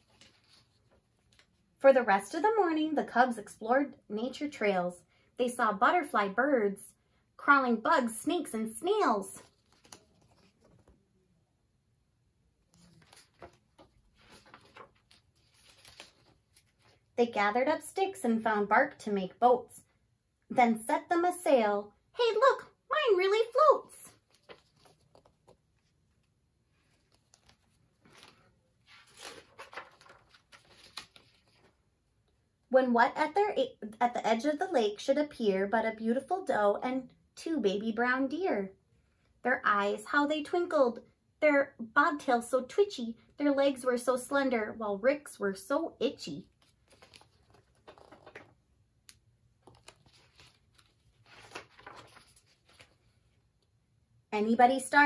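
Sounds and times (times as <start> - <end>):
paper pages turning: 0.0 - 1.6, 9.4 - 11.1, 12.6 - 17.1, 23.5 - 31.8, 46.5 - 53.4.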